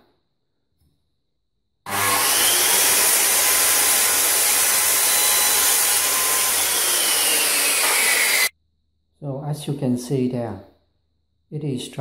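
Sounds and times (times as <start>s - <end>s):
circular saw cutting wood: 1.9s - 8.5s.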